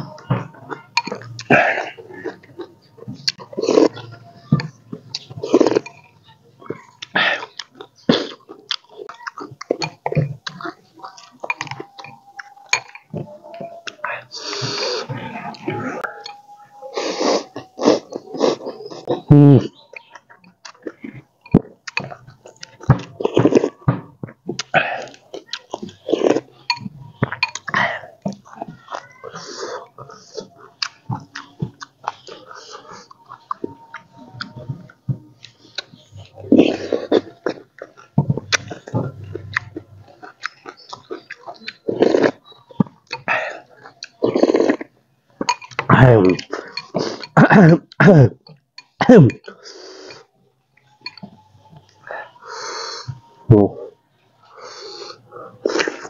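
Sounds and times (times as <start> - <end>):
chewing: 0.0 - 56.0
slurping soup: 1.0 - 6.0, 35.4 - 47.4, 54.4 - 56.0
person slurping noodle soup: 41.9 - 42.4, 44.2 - 44.9, 54.6 - 56.0.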